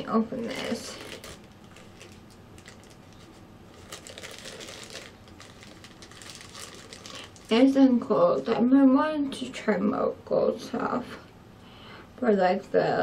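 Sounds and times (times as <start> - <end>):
packaging crinkling: 0.5 - 7.6.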